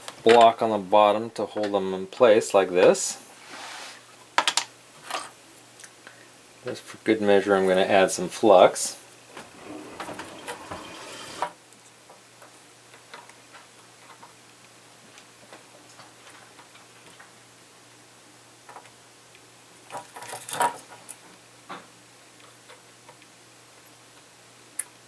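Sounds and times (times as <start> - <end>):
wooden stick scraping: 9.3 - 11.6.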